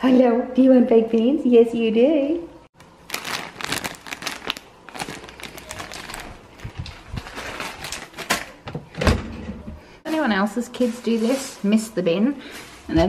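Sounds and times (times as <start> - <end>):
packaging crinkling: 2.8 - 8.5.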